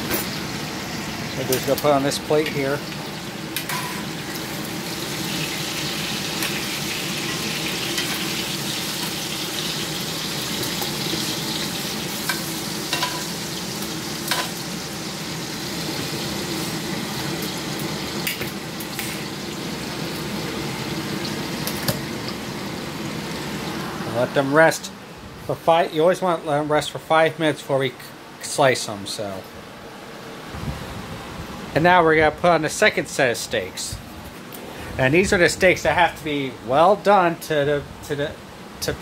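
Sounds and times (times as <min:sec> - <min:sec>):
fat sizzling in a skillet: 0:00.0 - 0:24.3.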